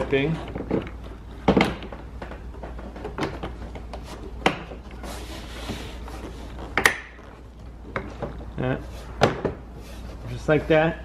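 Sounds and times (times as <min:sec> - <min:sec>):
plastic scraping rub: 0:03.9 - 0:07.5.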